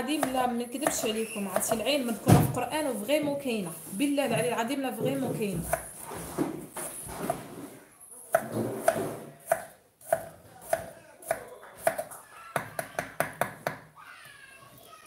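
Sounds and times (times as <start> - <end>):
knife chopping on wooden board: 0.2 - 2.5, 8.3 - 13.8.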